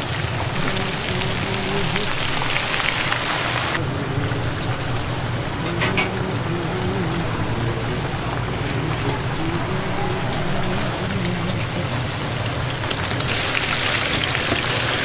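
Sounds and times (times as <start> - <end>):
low background hum: 0.4 - 14.9
oil sizzling in a deep fryer: 12.9 - 15.0.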